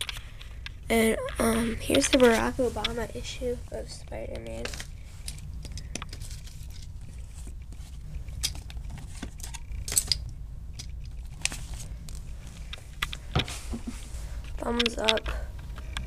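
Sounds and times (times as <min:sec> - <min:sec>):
paper cover rustling: 0:01.5 - 0:03.4, 0:06.1 - 0:09.6, 0:11.2 - 0:12.6.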